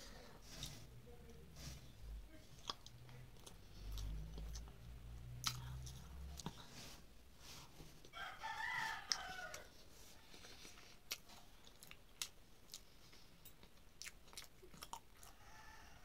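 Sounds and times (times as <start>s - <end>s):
person chewing food: 2.5s - 6.9s, 8.0s - 15.8s.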